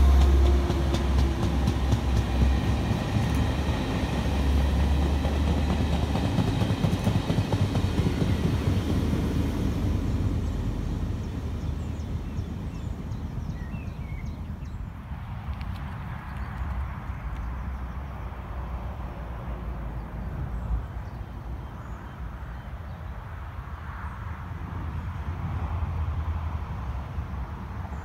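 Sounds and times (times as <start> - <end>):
train rail noise: 0.0 - 14.3
diesel locomotive engine hum: 0.0 - 28.0.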